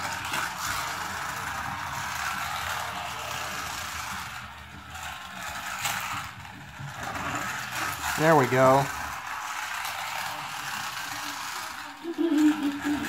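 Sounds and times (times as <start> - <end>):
toy car motor whirring: 0.0 - 13.0.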